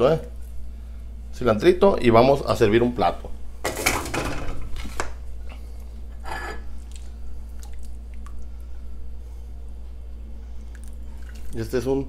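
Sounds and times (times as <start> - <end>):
steady low hum: 0.0 - 12.0
liquid sloshing in pot: 10.6 - 11.7.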